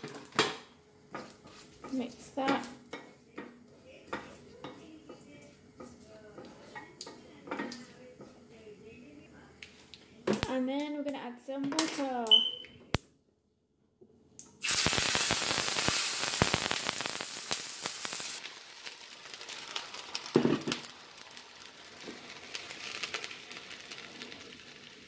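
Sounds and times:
hot oil sizzling: 0.0s - 8.4s, 14.6s - 25.0s
oil crackles: 14.6s - 25.0s.

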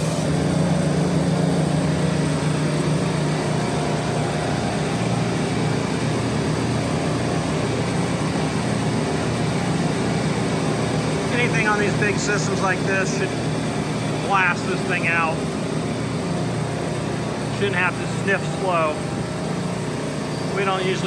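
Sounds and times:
refrigeration compressors humming: 0.0s - 21.0s.

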